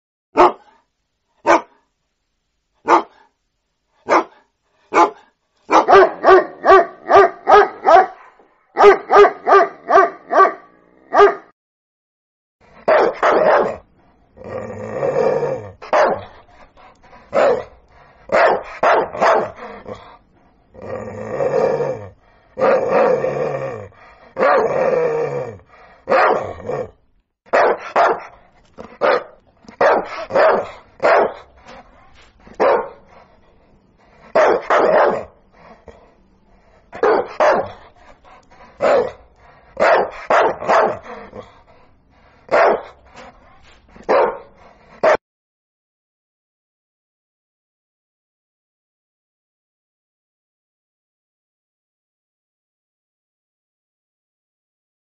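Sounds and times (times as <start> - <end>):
puppy barking: 0.4 - 0.8, 1.4 - 1.8, 2.8 - 3.3, 4.0 - 11.5, 12.8 - 13.8, 15.8 - 16.4, 17.3 - 17.7, 18.3 - 19.7, 24.4 - 24.7, 26.1 - 26.6, 27.5 - 31.8, 32.5 - 33.1, 34.3 - 35.3, 36.9 - 37.9, 38.8 - 39.2, 39.8 - 41.4, 42.5 - 43.0, 44.0 - 45.2.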